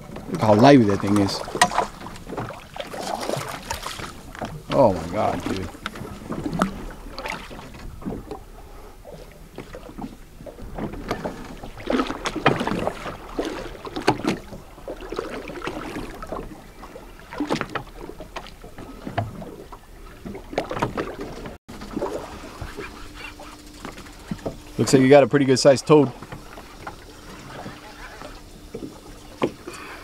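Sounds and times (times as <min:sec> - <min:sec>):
water slapping against boat: 0:00.0 - 0:30.0.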